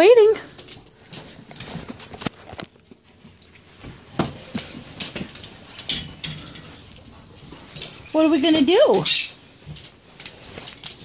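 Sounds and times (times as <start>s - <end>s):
footsteps on hard floor: 1.0s - 6.2s.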